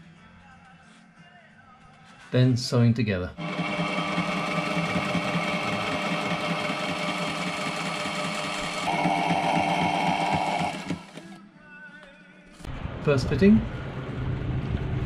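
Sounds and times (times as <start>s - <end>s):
sewing machine running: 3.4s - 11.4s.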